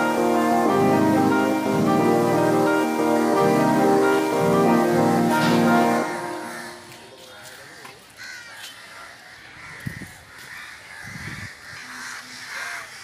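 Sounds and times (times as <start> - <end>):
crows cawing: 6.4 - 13.0.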